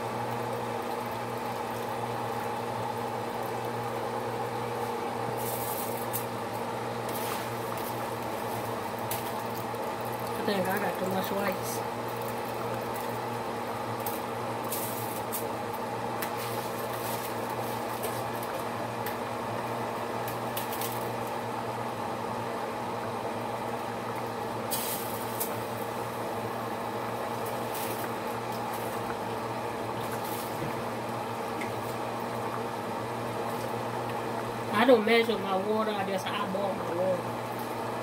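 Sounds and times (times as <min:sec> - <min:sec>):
pot of broth boiling: 0:00.0 - 0:38.0
steady hum: 0:00.0 - 0:38.0
hissing crackles: 0:04.7 - 0:19.3, 0:24.6 - 0:32.7.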